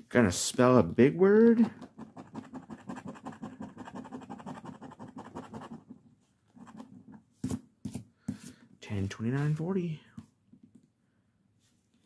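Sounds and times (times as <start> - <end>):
scratching lottery ticket: 1.6 - 5.9.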